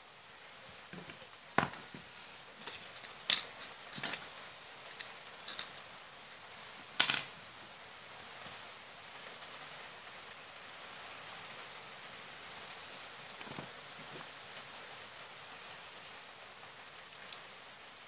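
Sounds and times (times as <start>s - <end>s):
metal parts clicking on tabletop: 7.0s - 7.3s, 17.0s - 17.4s.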